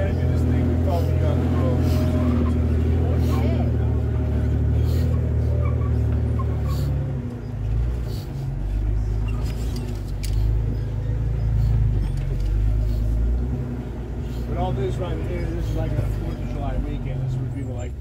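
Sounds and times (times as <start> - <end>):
vehicle engine rumbling: 0.0 - 18.0
light clicks and rattles: 9.2 - 10.8, 11.9 - 12.7.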